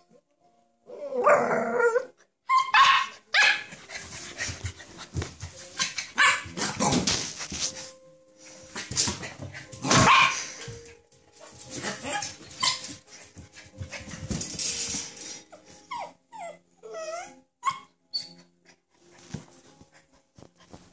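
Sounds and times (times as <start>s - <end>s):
puppy barking and growling: 0.9s - 4.6s, 5.8s - 7.1s, 9.8s - 10.6s, 11.7s - 12.9s
high-pitched yips: 2.5s - 3.7s.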